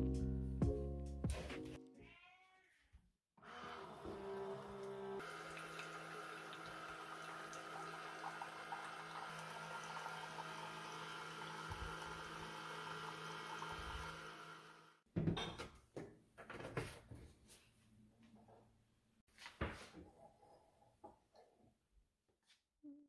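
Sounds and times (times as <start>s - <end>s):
coffee maker humming: 3.4s - 15.0s
coffee pouring into a mug: 5.2s - 14.4s.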